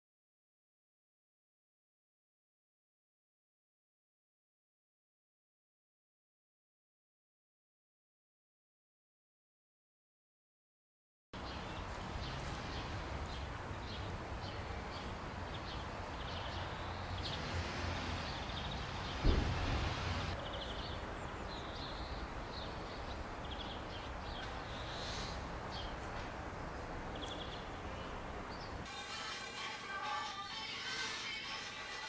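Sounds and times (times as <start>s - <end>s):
small birds chirping: 11.4s - 28.9s
distant traffic: 11.4s - 29.0s
wind rumble: 15.2s - 20.4s
low thump: 19.2s - 20.0s.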